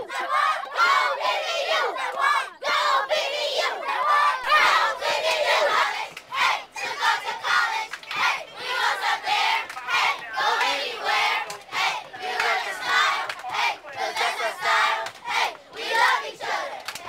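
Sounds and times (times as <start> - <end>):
children shouting and chanting: 0.0 - 17.0.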